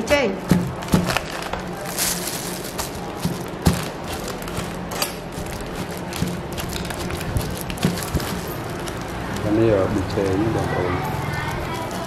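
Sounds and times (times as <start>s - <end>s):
pestle pounding in wooden mortar: 0.0s - 1.7s, 2.7s - 8.9s
steady low hum: 0.0s - 12.0s.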